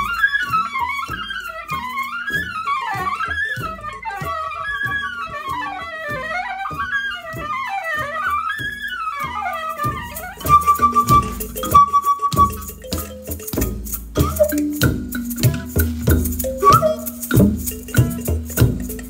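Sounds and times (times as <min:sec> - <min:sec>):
percussion strikes: 0:00.0 - 0:19.0.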